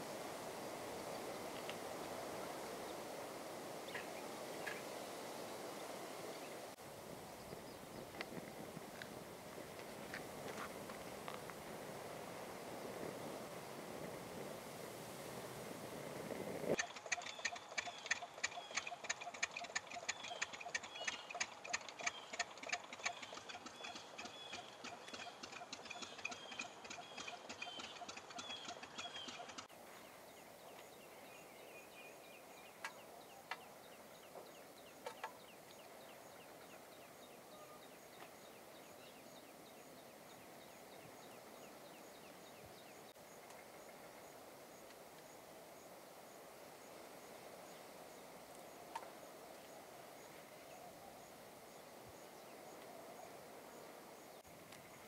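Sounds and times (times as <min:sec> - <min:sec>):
swallows twittering: 0:16.9 - 0:22.4.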